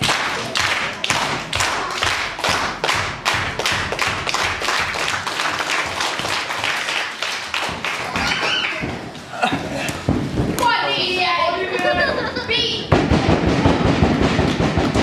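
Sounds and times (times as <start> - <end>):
crowd clapping in unison: 0.0 - 9.0, 14.1 - 15.0.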